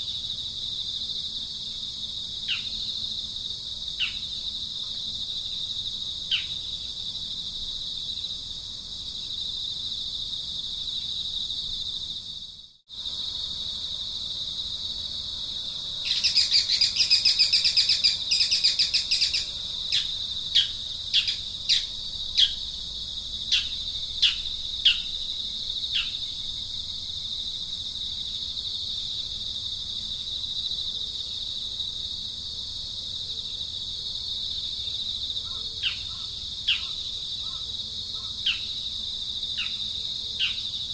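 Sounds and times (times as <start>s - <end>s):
high insect drone: 0.0s - 40.9s
bird chattering and calling: 16.1s - 22.6s, 23.5s - 25.1s, 35.4s - 38.8s.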